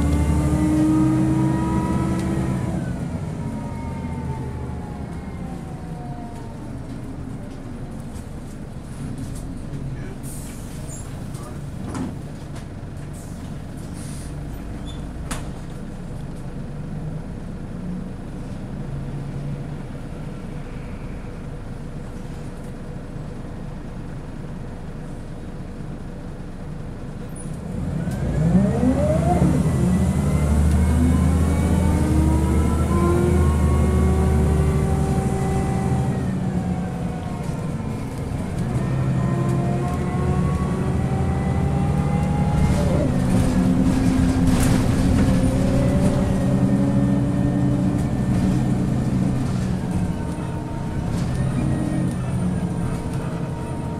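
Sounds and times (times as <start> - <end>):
bus diesel engine: 0.0 - 53.9.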